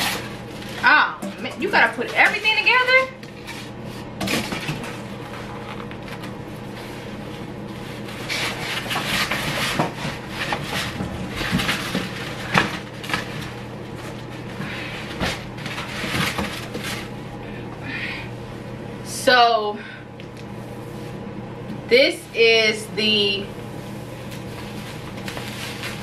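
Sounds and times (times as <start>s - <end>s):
low steady hum: 0.0s - 26.0s
cardboard and foam rustling: 1.8s - 17.2s, 23.8s - 26.0s.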